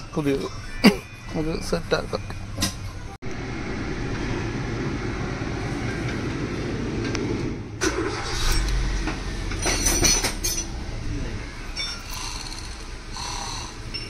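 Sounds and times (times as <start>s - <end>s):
car engine running: 3.2s - 14.0s.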